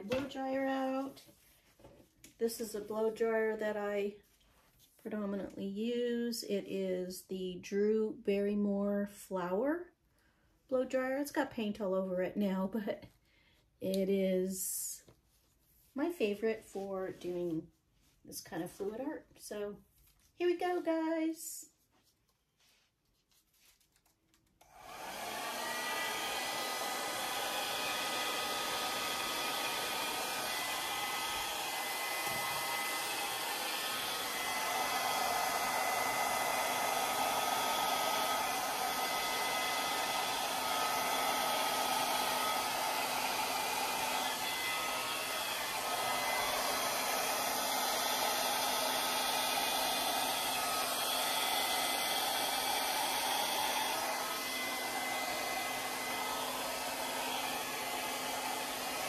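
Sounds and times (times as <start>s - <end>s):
hair dryer running: 0.0s - 1.1s, 2.5s - 4.0s, 24.6s - 59.0s.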